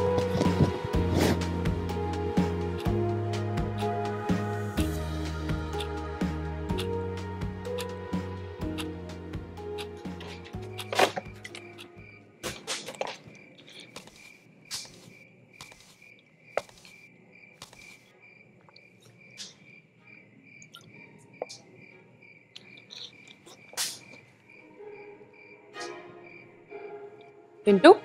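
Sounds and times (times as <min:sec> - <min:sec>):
cricket chirping: 0:06.7 - 0:27.8.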